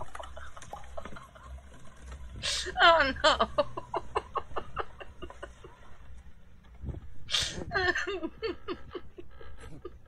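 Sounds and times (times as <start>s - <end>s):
person laughing: 0.0s - 1.8s, 2.4s - 6.0s, 7.3s - 10.0s.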